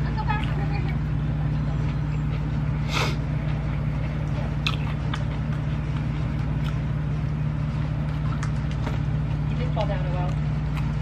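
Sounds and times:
steady low hum: 0.0 - 11.0
person chewing food: 1.9 - 9.6, 10.3 - 11.0.

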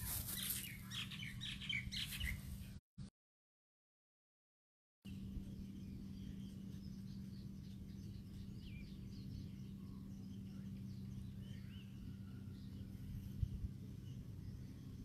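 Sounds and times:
birds chirping: 0.0 - 2.8, 5.1 - 15.0
outdoor background noise: 0.0 - 2.8, 5.1 - 15.0
steady low hum: 5.1 - 15.0.

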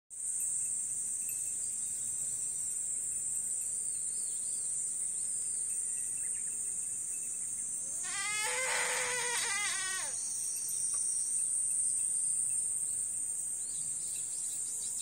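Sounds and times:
insects droning: 0.2 - 15.0.

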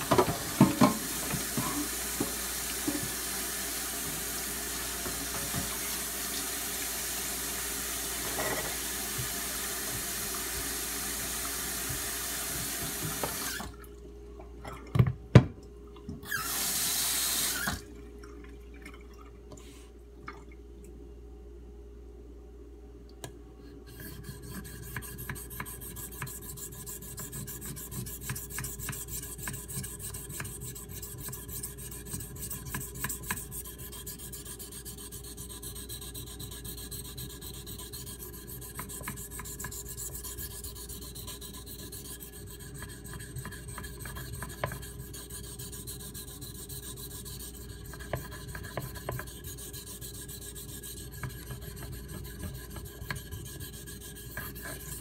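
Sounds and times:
knife blade scraping on whetstone: 23.9 - 55.0.

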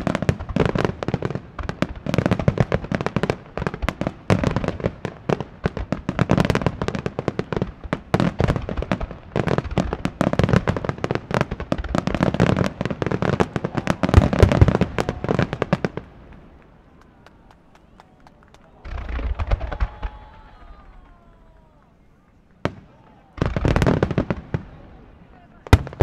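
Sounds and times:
fireworks bursting and crackling: 0.0 - 26.0.

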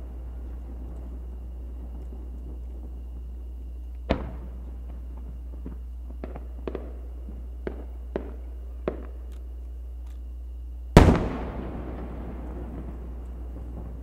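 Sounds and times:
distant firework cracks: 4.0 - 9.2, 11.0 - 14.0
firework boom with echo: 11.0 - 14.0.

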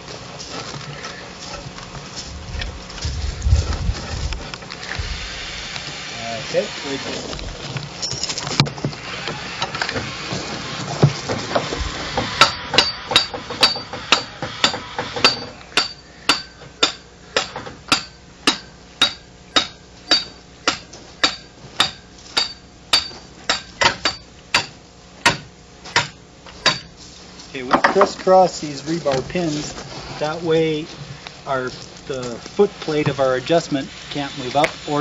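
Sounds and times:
hammer striking metal pins: 12.2 - 26.9.

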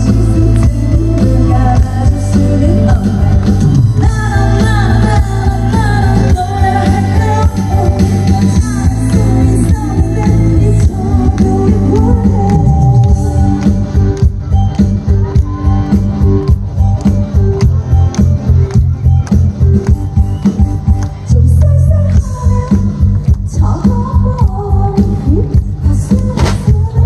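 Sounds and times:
woman singing into a microphone: 0.0 - 14.0, 21.2 - 27.0
amplified backing music with beat: 0.0 - 27.0.

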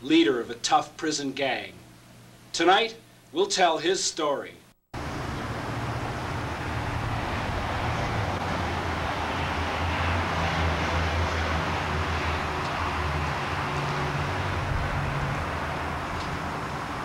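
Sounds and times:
outdoor background rumble: 5.0 - 17.0.

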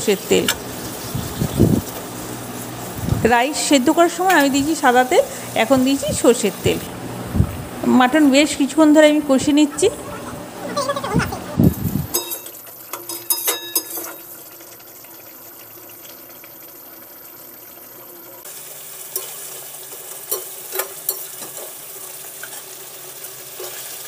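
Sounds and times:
meat sizzling in oil: 0.0 - 6.9, 12.2 - 24.0.

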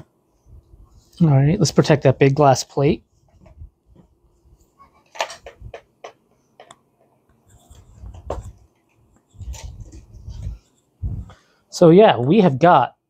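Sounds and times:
dull low thumps: 10.1 - 11.4.

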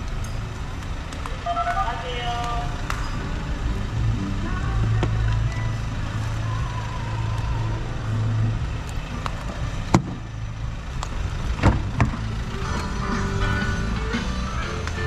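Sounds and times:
steady low hum: 0.0 - 15.0
fuel flap snapping shut: 9.2 - 10.2.

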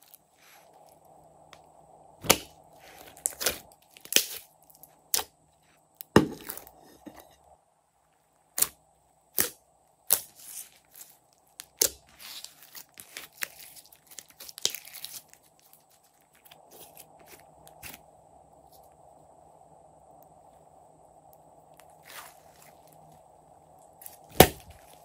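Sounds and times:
slime crackling: 10.1 - 16.2.

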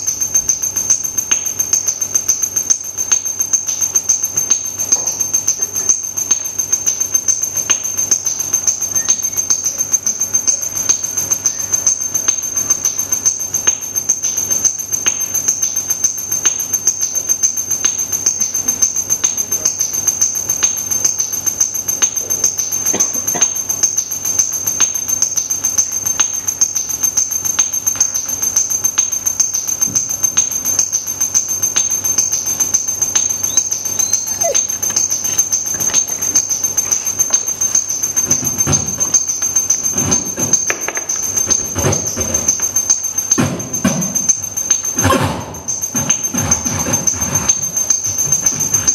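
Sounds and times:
high-pitched electronic whine: 4.5 - 43.4.

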